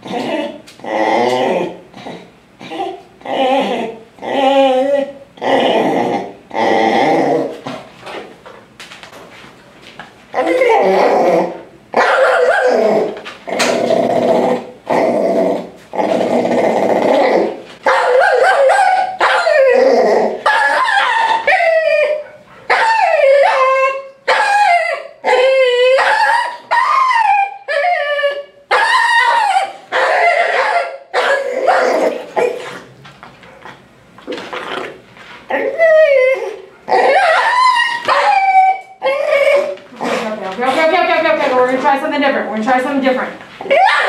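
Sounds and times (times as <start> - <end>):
small dog yelping and barking: 12.0 - 12.9, 17.8 - 19.8, 20.4 - 32.6, 35.5 - 39.8, 43.6 - 44.0.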